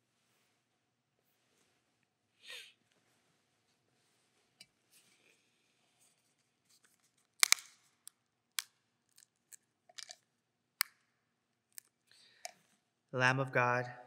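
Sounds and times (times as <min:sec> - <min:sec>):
bread host snapping: 0:07.4 - 0:07.8.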